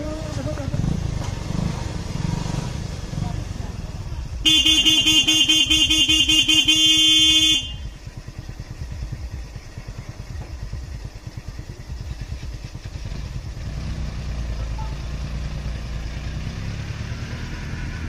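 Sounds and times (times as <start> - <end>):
small engine idling: 0.0 - 17.0
vehicle horn blaring: 4.4 - 8.0.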